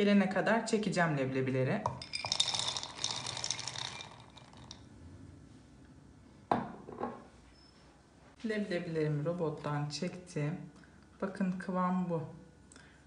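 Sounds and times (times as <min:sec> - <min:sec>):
chickpeas clattering into bowl: 0:01.9 - 0:04.8.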